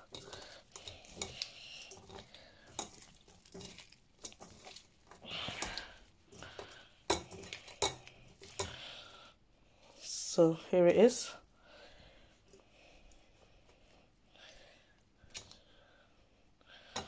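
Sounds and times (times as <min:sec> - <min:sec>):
clicks and taps on metal colander: 0:06.4 - 0:08.8.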